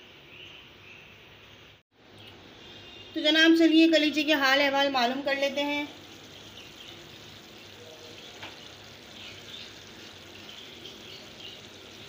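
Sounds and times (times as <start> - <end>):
curry bubbling and sizzling: 3.9 - 12.0.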